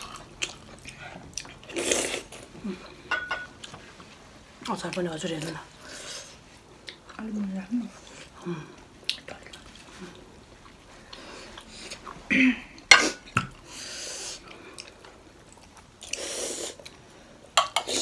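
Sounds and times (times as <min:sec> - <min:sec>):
chewing and wet mouth noises: 0:00.0 - 0:03.0, 0:06.8 - 0:07.3, 0:07.9 - 0:12.9, 0:14.2 - 0:17.0.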